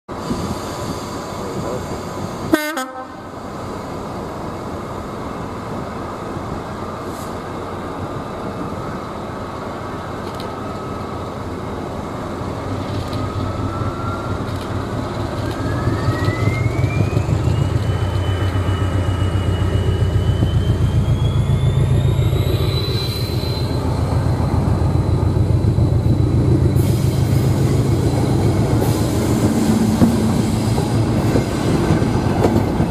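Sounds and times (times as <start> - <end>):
thin rising whine: 15.4 - 31.1.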